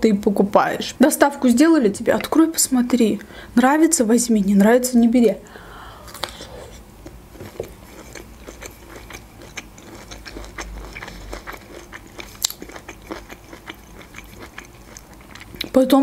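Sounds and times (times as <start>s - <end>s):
person chewing: 6.0s - 15.8s.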